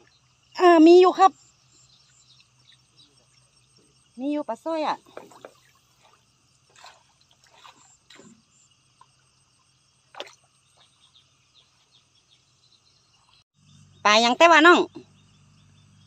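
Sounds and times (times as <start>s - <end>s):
small splashes: 5.0s - 9.2s, 10.0s - 11.0s
water dripping and trickling: 5.0s - 9.2s, 10.1s - 11.0s.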